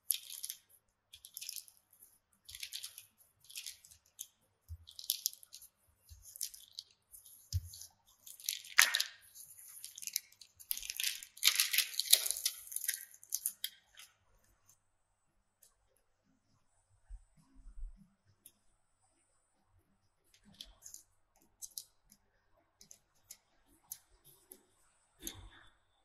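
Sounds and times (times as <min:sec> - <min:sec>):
parchment paper crinkling: 0:00.0 - 0:14.6.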